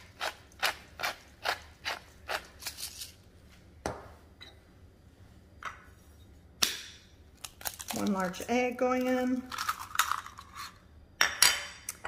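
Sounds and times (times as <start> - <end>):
pepper mill grinding: 0.0 - 3.2, 9.0 - 10.9.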